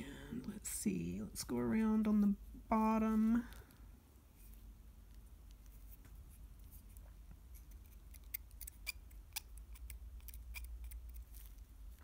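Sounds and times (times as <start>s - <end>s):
knife blade scraping resin: 7.5s - 11.6s.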